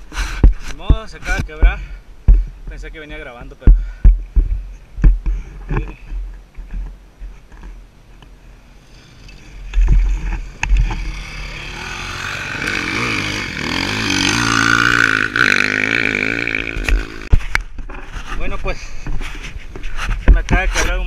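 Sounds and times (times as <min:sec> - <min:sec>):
low thuds on microphone: 0:00.3 - 0:02.8, 0:03.6 - 0:06.9
dirt bike engine revving past: 0:10.4 - 0:17.3.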